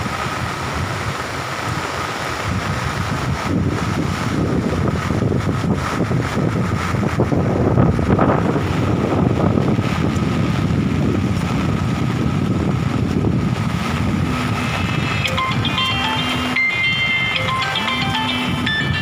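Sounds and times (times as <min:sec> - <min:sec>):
floodwater rushing: 0:00.0 - 0:19.0
wind buffeting microphone: 0:00.0 - 0:19.0.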